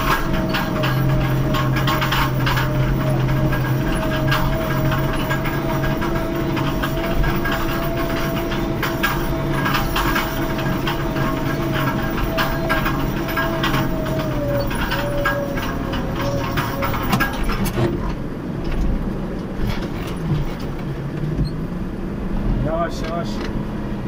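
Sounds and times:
short rattling knocks: 0.0s - 18.0s
tractor diesel engine running: 0.0s - 24.0s.

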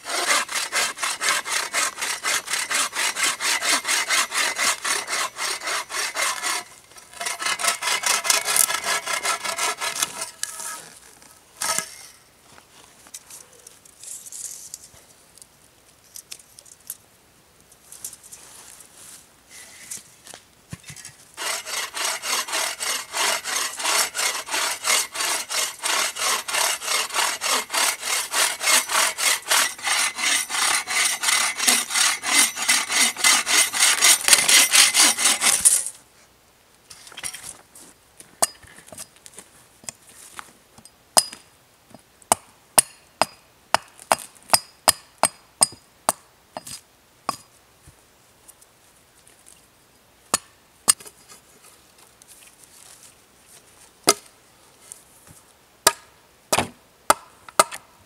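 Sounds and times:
saw cutting log: 0.0s - 10.8s, 21.4s - 35.8s
hatchet striking wooden stake: 41.2s - 41.4s, 42.3s - 47.5s, 50.3s - 51.1s, 54.0s - 54.3s, 55.8s - 57.9s.

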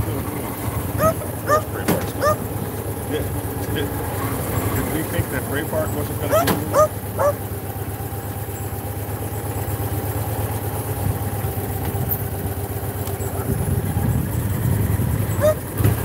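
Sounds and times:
motorcycle engine running: 0.0s - 16.0s
short rising calls: 1.0s - 2.5s, 6.3s - 7.4s.

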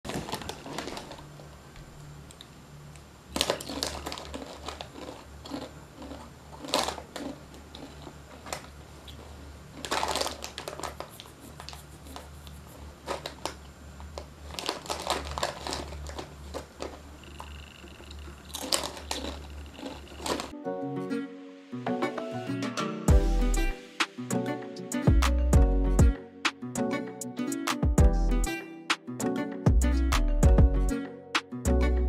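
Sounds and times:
plastic snack packet crinkling: 0.1s - 1.6s, 3.3s - 20.5s.

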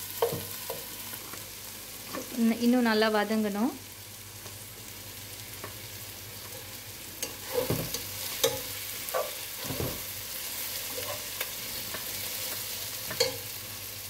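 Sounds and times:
onions sizzling in oil: 0.0s - 14.0s
spatula scraping a pot: 7.2s - 10.0s, 10.8s - 11.6s.

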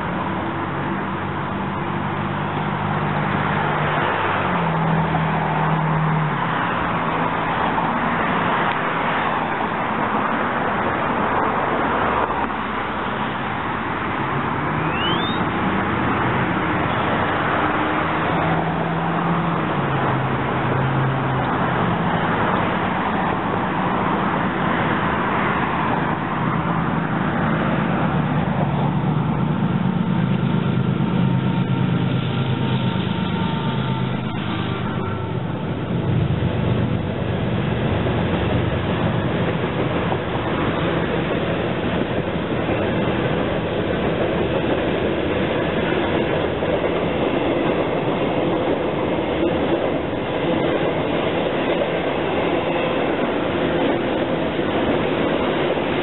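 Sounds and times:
diesel locomotive engine drone: 0.0s - 56.0s.

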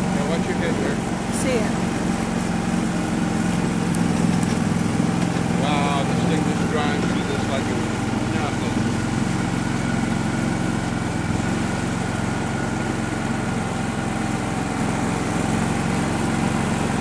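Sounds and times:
vehicle engine running steadily: 0.0s - 17.0s.

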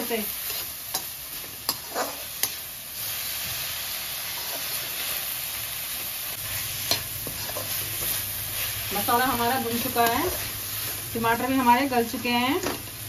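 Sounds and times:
masala sizzling in a pan: 0.0s - 13.0s
spatula stirring: 6.4s - 11.5s.

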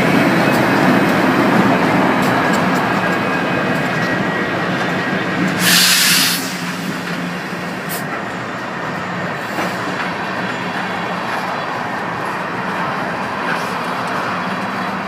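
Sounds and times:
locomotive engine hum: 0.0s - 15.0s
train wheels rumbling on rail: 0.0s - 15.0s
loud hiss: 5.6s - 8.0s.

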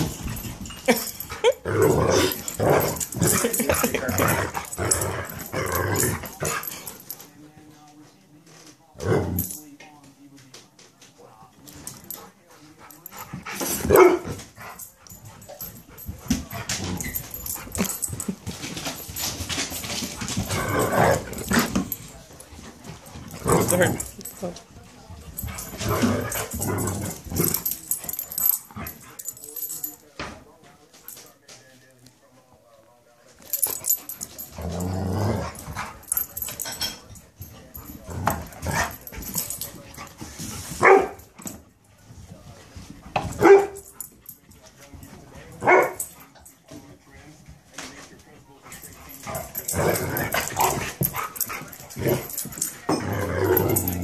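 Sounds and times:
dogs play-growling: 0.0s - 7.2s, 9.0s - 9.6s, 12.8s - 24.4s, 25.3s - 29.9s, 33.6s - 36.9s, 37.5s - 40.7s, 48.6s - 54.0s.

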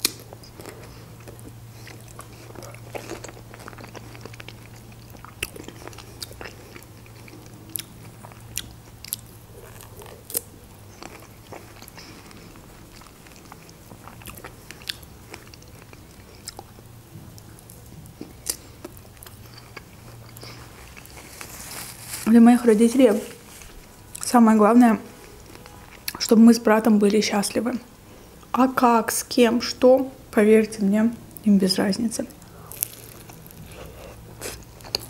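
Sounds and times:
person biting and chewing: 0.0s - 16.8s, 17.4s - 22.0s, 32.4s - 35.0s
low steady hum: 0.0s - 35.0s.

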